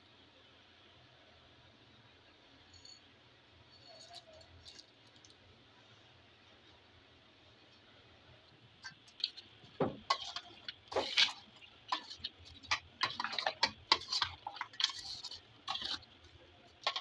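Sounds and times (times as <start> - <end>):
food mixed in metal pot: 8.8 - 17.0.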